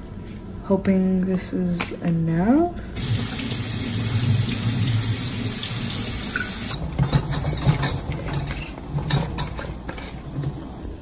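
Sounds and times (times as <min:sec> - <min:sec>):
kitchen tap running into bowl: 0:03.0 - 0:08.0
cookware knocking and clattering: 0:06.4 - 0:10.2.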